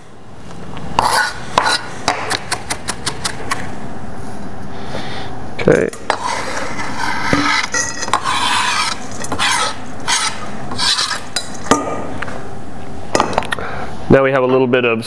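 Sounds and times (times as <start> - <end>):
knife scraping cutting board: 1.0 - 3.6, 6.0 - 11.6.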